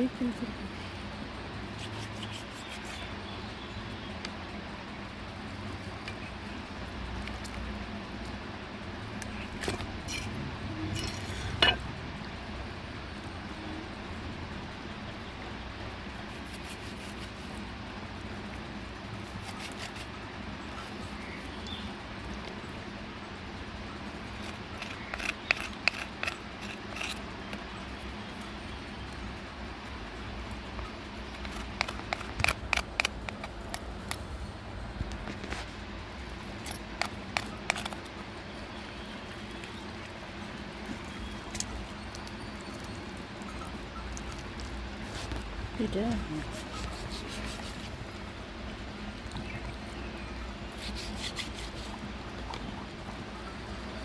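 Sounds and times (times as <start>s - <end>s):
background hum and hiss: 0.0s - 54.0s
low background noise: 0.0s - 54.0s
knife scraping on chopping block: 24.4s - 27.2s.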